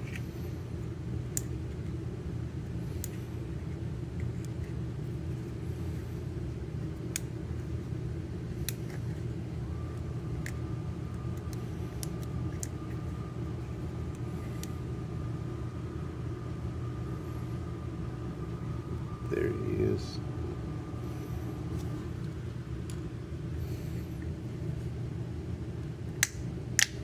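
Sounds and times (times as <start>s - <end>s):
low rumble of room noise: 0.0s - 27.0s.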